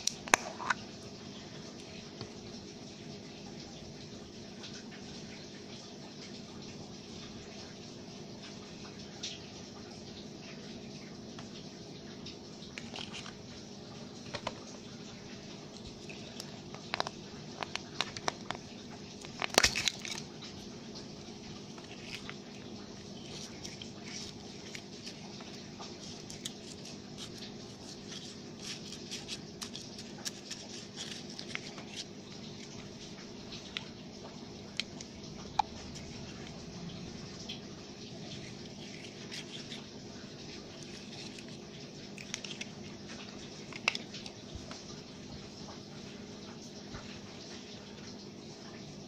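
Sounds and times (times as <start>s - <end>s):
slime squishing: 19.2s - 20.6s, 21.2s - 34.0s.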